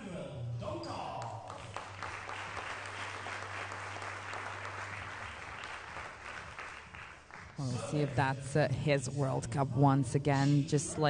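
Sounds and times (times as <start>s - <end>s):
audience applauding: 1.2s - 7.7s.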